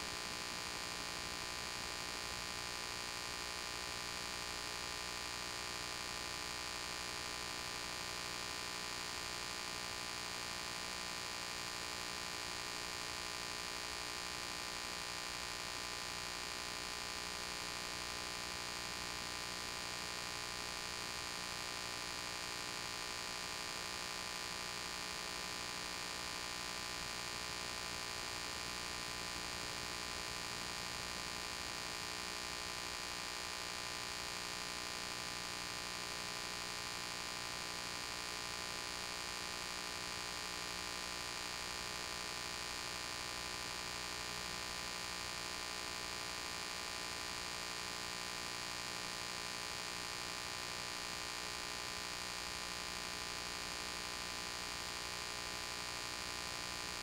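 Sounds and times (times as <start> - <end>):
electrical hum with hiss: 0.0 - 57.0.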